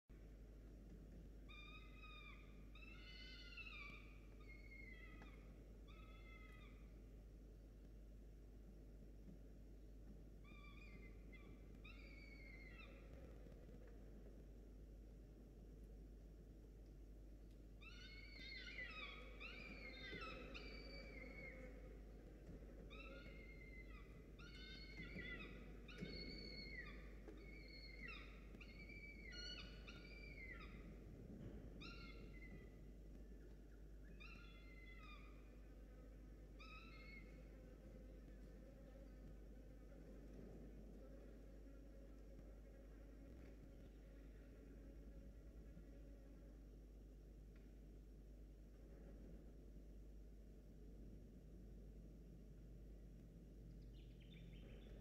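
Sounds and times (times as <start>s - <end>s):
falcon chick crying: 1.5s - 6.9s, 10.5s - 13.4s, 17.8s - 31.0s, 31.8s - 32.8s, 34.1s - 35.7s, 36.6s - 37.6s.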